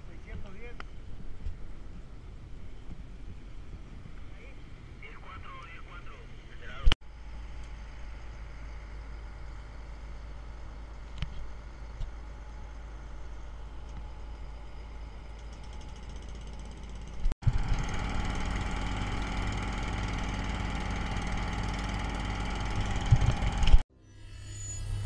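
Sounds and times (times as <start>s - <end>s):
fire truck engine running: 7.1s - 23.8s.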